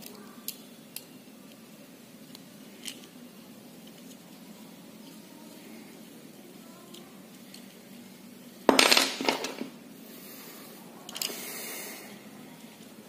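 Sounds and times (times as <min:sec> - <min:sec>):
small metal parts clattering: 0:08.7 - 0:09.7.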